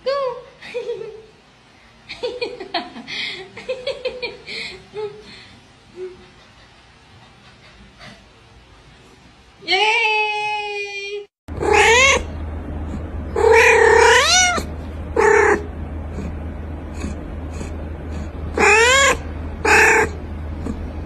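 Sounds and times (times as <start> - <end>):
steady low hum: 0.0 - 21.0
cat meowing loudly: 11.6 - 12.3, 13.4 - 15.6, 18.6 - 20.2.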